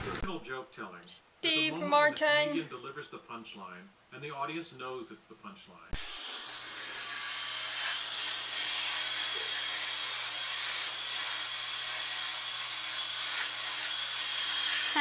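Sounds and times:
electric shaver buzzing: 6.0 - 15.0.

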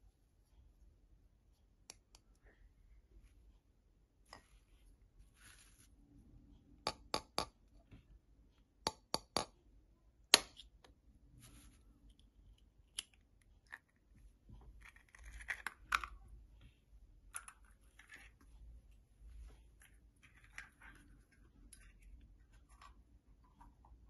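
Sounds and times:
knife tapping on eggshell: 6.9 - 7.5.

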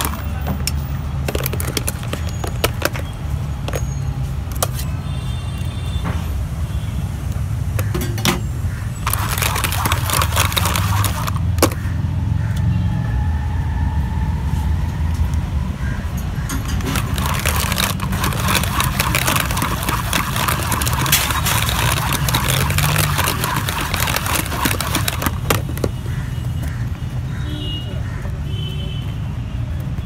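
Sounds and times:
electric hand mixer whisking: 9.0 - 11.5, 16.6 - 25.9.

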